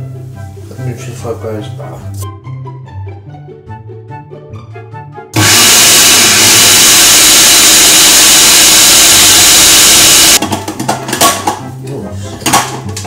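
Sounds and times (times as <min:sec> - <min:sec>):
food processor whirring: 0:05.4 - 0:10.4.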